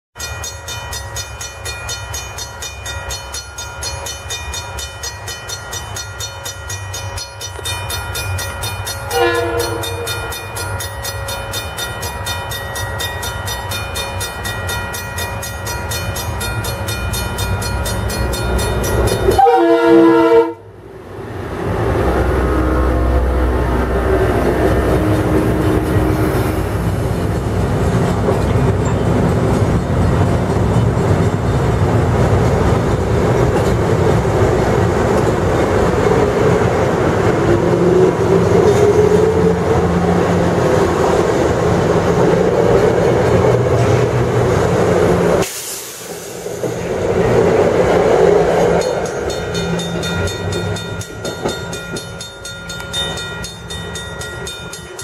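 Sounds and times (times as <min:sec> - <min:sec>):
crossing bell ringing: 0:00.2 - 0:20.6, 0:48.3 - 0:55.0
train horn blast: 0:09.1 - 0:10.3, 0:19.2 - 0:20.7
train wheels and motors rumbling: 0:20.8 - 0:55.0.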